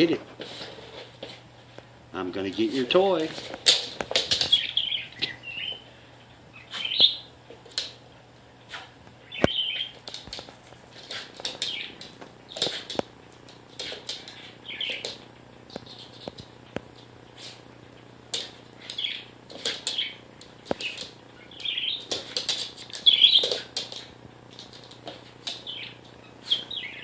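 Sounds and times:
budgerigar chirping: 4.5 - 5.8, 6.5 - 7.3, 9.3 - 9.9, 20.8 - 22.0, 25.7 - 27.0.

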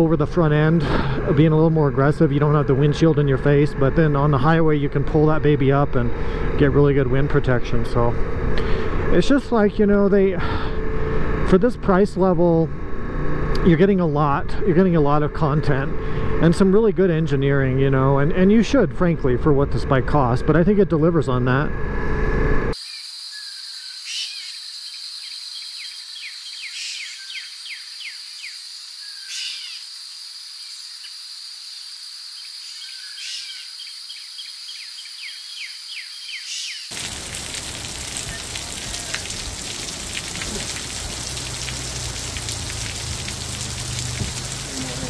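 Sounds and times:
birds chirping and trilling: 22.8 - 31.1, 31.7 - 41.4
hail and rain pelting: 36.9 - 45.0.

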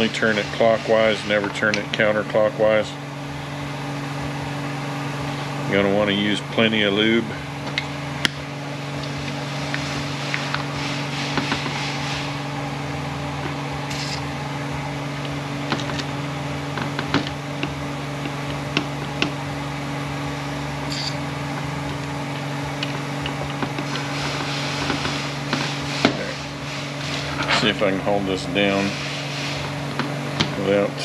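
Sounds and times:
steady low hum: 0.0 - 31.0
aerosol can hissing: 13.9 - 14.2.

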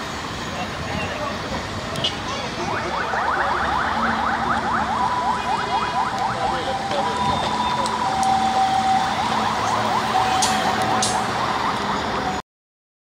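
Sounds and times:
police sirens: 0.0 - 12.4.

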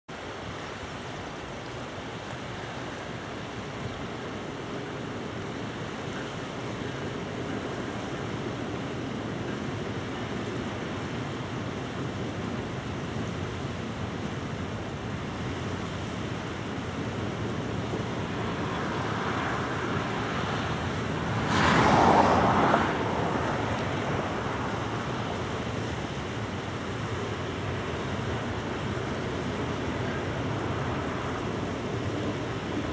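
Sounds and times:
freight train rumbling: 3.8 - 32.9
loud rush: 18.1 - 25.2.

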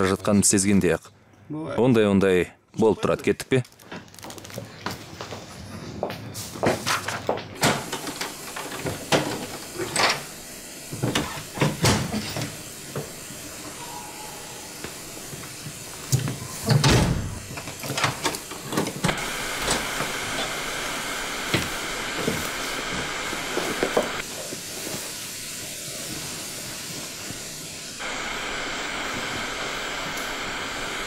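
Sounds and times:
steam hissing: 7.6 - 31.0.

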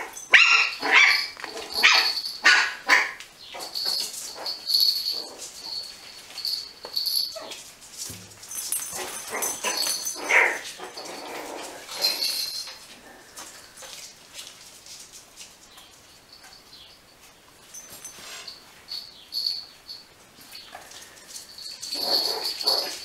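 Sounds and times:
puppies yipping and whimpering: 0.1 - 6.0, 9.0 - 12.6, 21.8 - 23.0.

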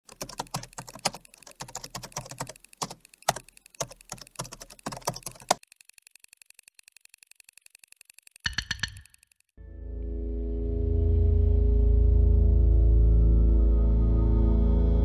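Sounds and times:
keyboard typing clicks: 0.0 - 9.6
faint fast ticking: 0.1 - 9.6.

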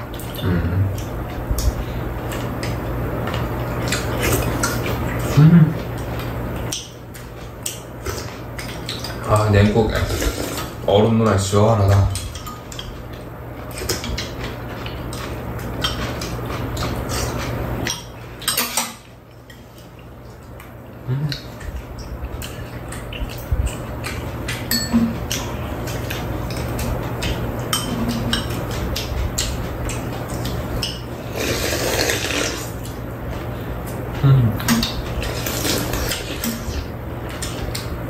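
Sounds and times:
steady low hum: 0.0 - 38.0
slurping: 9.9 - 10.8, 31.2 - 32.8.

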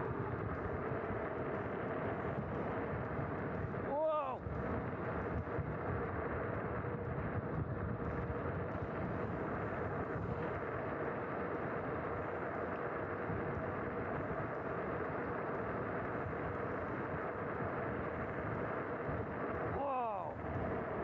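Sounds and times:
faint steady motor hum: 0.0 - 21.0.

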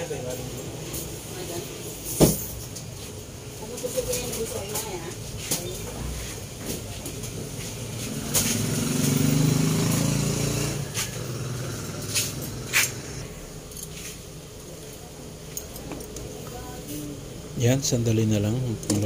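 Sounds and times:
steady background hiss: 0.0 - 19.0
vehicle engine passing: 7.4 - 14.1.

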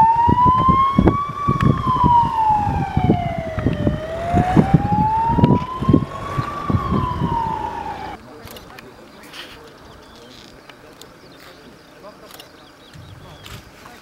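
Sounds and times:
electronic siren wailing: 0.0 - 8.2.

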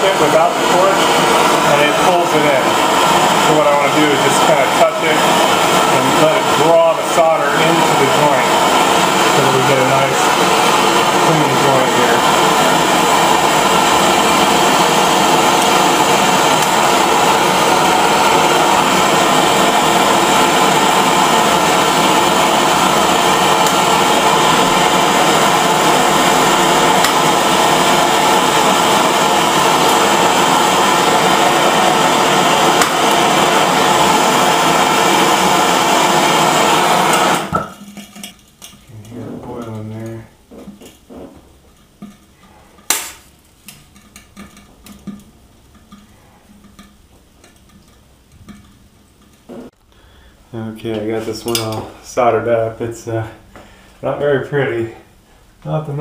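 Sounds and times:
torch flame hissing: 0.0 - 49.8
sharp knock: 42.9 - 43.2.

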